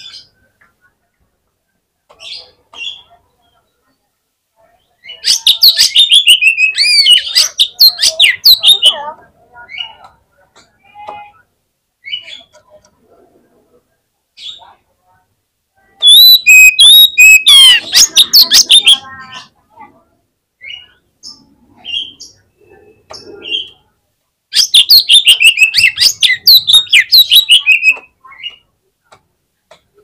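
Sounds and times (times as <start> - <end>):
songbird singing whistled notes: 5.0 - 9.0, 16.0 - 19.5, 24.5 - 28.6.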